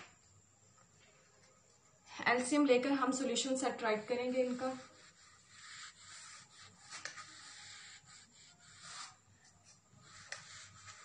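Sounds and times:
pen scratching on paper: 3.3s - 11.0s.

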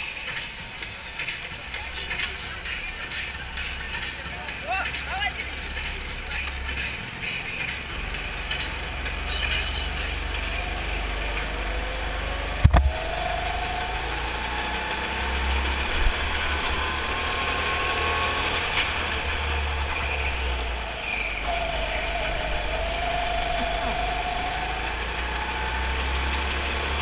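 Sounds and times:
go-kart engine accelerating: 0.0s - 27.0s
sharp knock: 12.6s - 13.0s.

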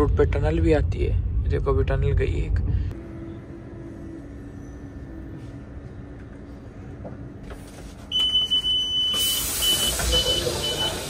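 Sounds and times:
electronic warning beeps: 8.1s - 11.0s
loud hiss: 9.2s - 11.0s.

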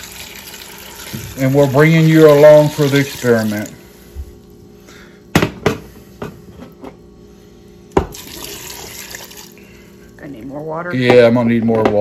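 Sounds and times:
water pouring into metal pot: 0.0s - 3.8s, 8.1s - 9.6s.

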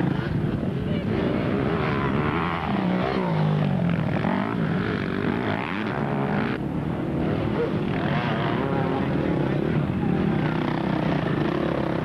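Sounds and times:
motorcycle engines revving hard: 0.0s - 12.0s.

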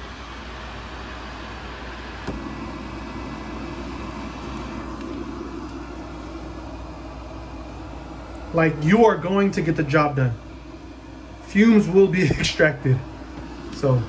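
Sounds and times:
fume extractor fan humming: 0.0s - 14.0s.

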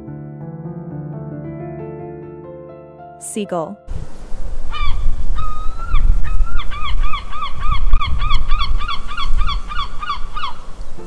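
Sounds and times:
gull calling: 4.7s - 11.0s.

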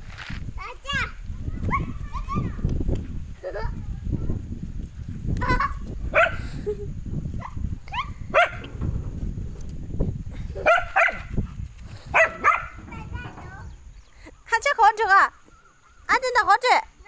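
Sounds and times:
dog barking and yelping: 6.1s - 6.4s, 7.4s - 8.7s, 10.6s - 11.4s, 12.1s - 13.0s.

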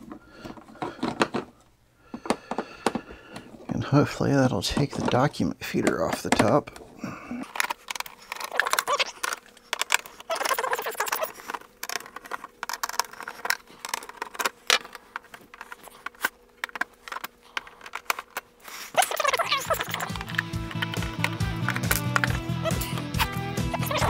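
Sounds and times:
clicks and clatter of screws and plastic: 0.0s - 3.8s, 4.4s - 23.0s
background music: 19.6s - 24.0s.

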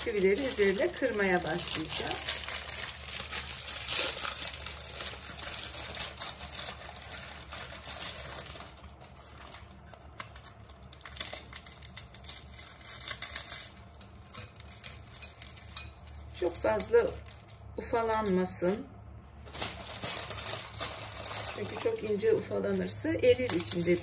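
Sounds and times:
biscuits snapping and crumbling: 0.0s - 16.5s.

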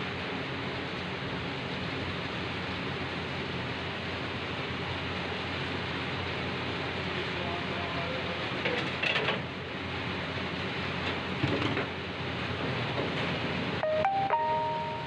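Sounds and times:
gas burner roar: 0.0s - 14.2s.

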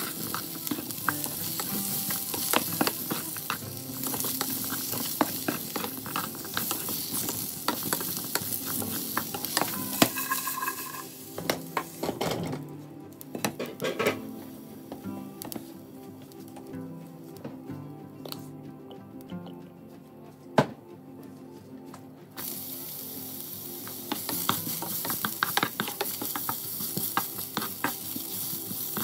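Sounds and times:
spatula scraping a pan: 0.0s - 12.3s, 24.1s - 29.0s
vegetables sizzling in hot oil: 0.0s - 12.4s, 22.4s - 29.0s
soft background music: 0.0s - 29.0s.

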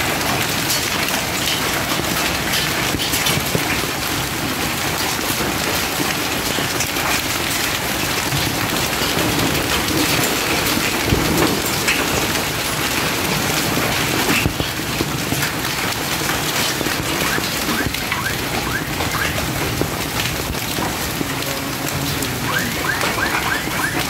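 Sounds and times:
heavy rain: 0.0s - 24.0s.

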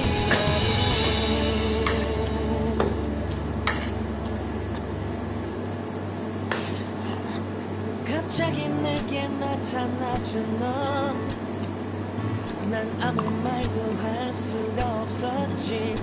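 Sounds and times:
background music: 0.0s - 5.0s.

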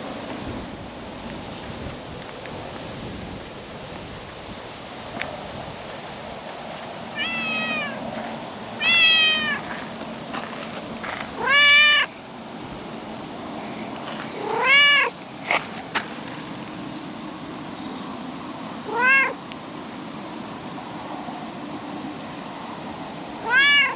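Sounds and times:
cat meowing: 7.2s - 8.0s, 8.8s - 9.6s, 11.4s - 12.1s, 14.4s - 15.2s, 18.9s - 19.4s, 23.4s - 23.9s.

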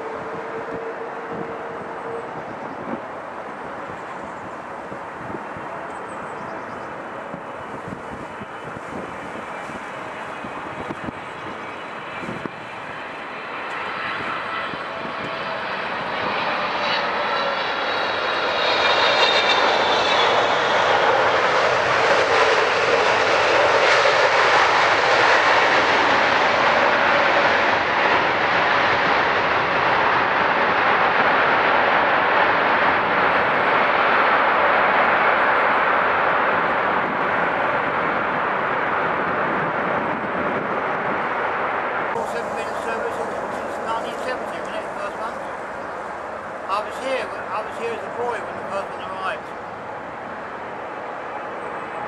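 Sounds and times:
jet engines landing: 0.0s - 52.0s.

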